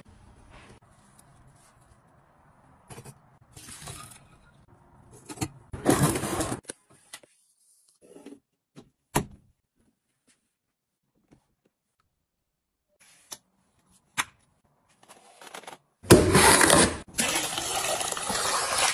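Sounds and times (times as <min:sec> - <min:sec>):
box cutter slicing cardboard tape: 0:16.1 - 0:17.0.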